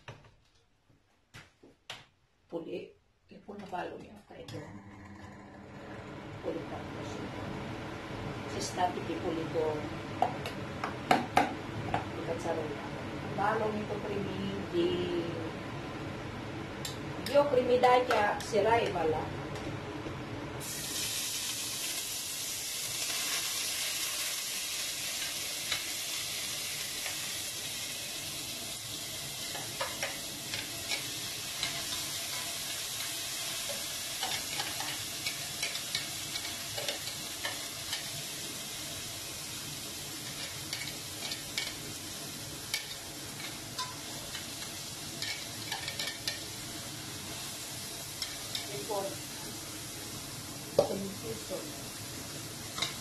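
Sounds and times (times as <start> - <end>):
onion sizzling in hot oil: 20.5 - 53.0.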